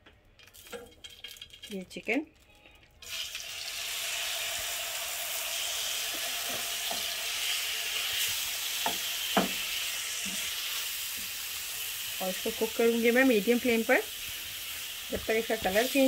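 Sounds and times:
chicken sizzling in oil: 3.0 - 16.0
spatula knocking on pan: 8.8 - 9.6.

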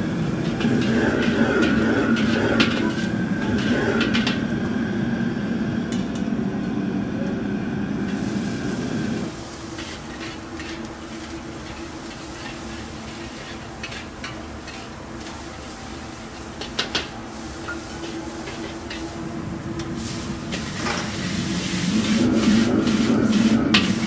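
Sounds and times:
food sizzling: 0.0 - 4.2, 8.0 - 24.0
burner hum: 0.0 - 24.0
ladle scraping a wok: 0.3 - 4.4, 9.3 - 19.2, 20.0 - 24.0.

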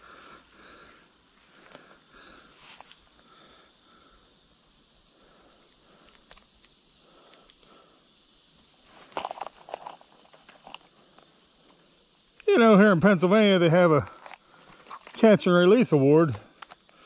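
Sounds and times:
cricket chirps: 0.0 - 17.0
insects droning: 0.0 - 17.0
rustling and clicks: 6.0 - 7.7, 8.9 - 11.3, 16.3 - 17.0.

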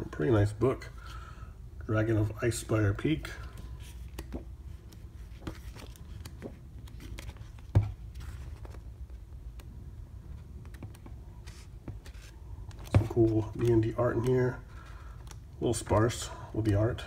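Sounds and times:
booklet pages turning: 3.3 - 16.8.

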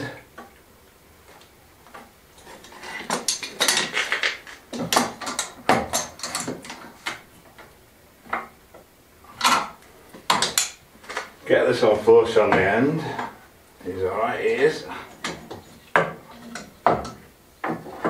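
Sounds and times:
metal clamps clicking and clattering: 2.5 - 7.2.

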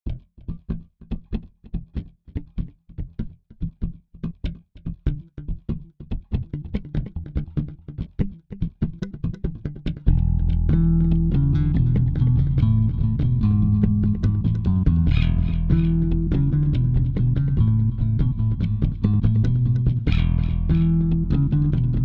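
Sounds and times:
plucked guitar-like notes: 0.1 - 22.0
bass and band music: 9.8 - 22.0.

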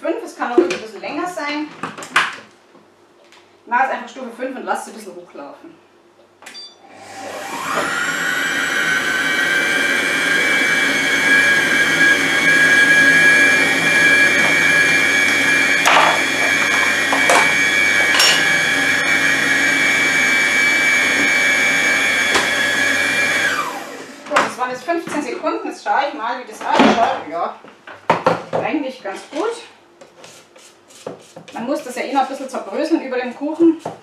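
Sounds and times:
food processor motor whining: 6.9 - 24.3.

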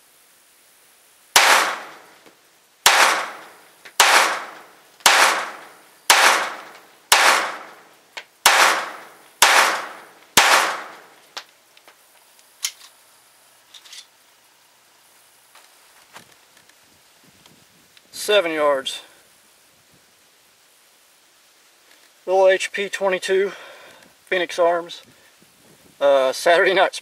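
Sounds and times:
pistol shots with echo: 1.4 - 2.1, 2.9 - 7.8, 8.4 - 11.1.

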